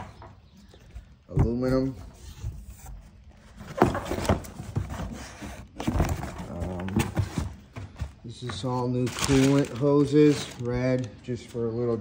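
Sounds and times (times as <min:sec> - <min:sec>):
cardboard boxes scraping and rustling: 0:01.7 - 0:10.9.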